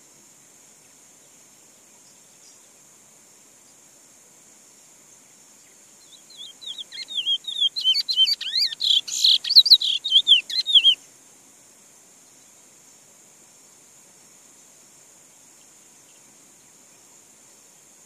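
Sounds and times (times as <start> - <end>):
finch singing warbled whistles: 6.3 - 11.0.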